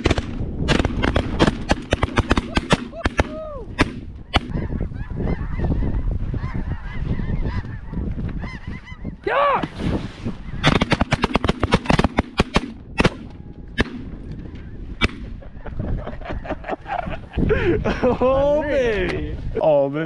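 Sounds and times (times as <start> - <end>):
shotgun shots: 0.0 - 4.5, 10.6 - 13.2
geese honking: 4.3 - 9.2.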